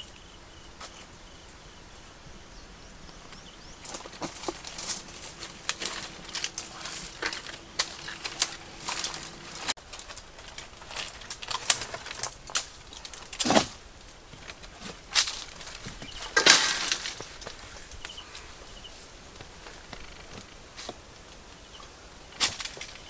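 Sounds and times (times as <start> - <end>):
dry branches rustling and crackling: 0.0 - 23.0
footsteps crunching on dry leaves: 3.6 - 12.3, 14.7 - 21.0
rustling crash: 3.8 - 17.9.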